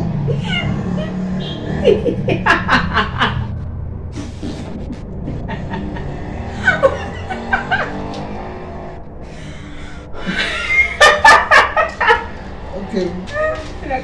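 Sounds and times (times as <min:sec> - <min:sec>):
woman laughing: 0:00.3 - 0:03.5, 0:04.1 - 0:08.0, 0:10.2 - 0:12.3.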